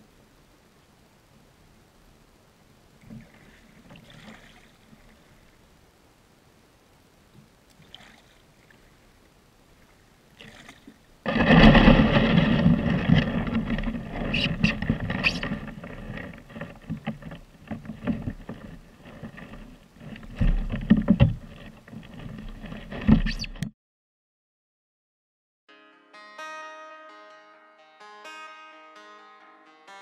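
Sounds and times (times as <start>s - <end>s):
water splashing around kayak hull: 2.9s - 6.3s, 7.2s - 23.7s.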